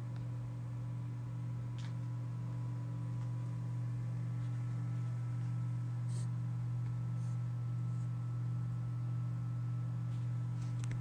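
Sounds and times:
ceiling fan motor humming: 0:00.0 - 0:11.0.

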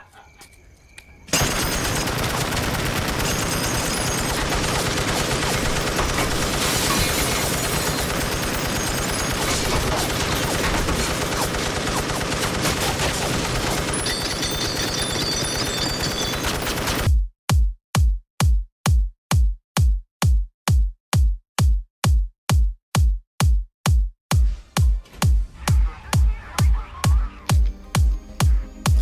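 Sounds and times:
machine gun automatic fire: 0:01.3 - 0:17.1.

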